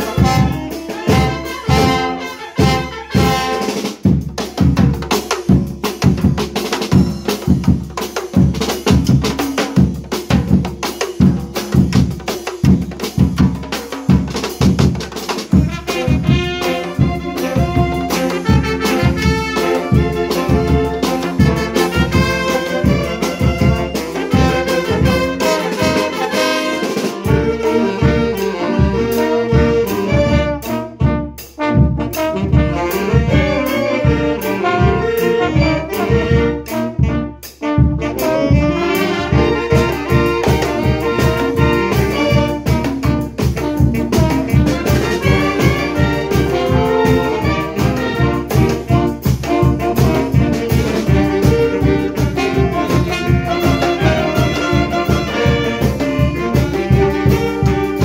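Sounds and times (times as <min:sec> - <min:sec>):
brass band playing upbeat tune: 0:00.0 - 0:58.0.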